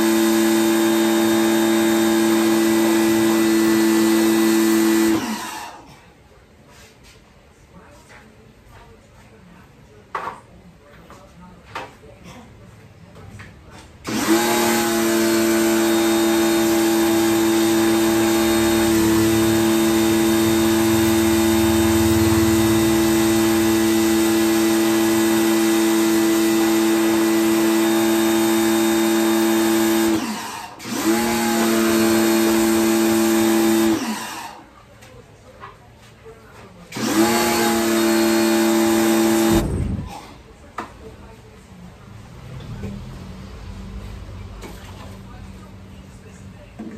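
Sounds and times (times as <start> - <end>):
pressure washer humming: 14.1 - 34.4, 37.0 - 40.3.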